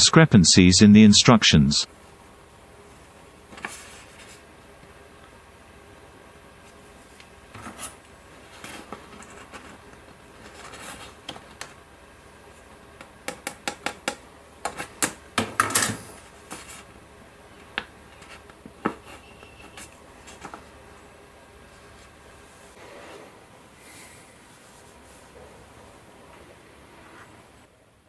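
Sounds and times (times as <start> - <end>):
paper rustling: 3.5 - 4.5.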